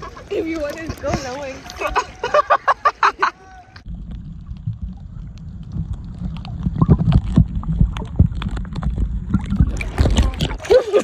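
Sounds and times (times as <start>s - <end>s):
muffled underwater rumble: 3.8s - 11.0s
underwater gurgles and knocks: 3.8s - 11.0s.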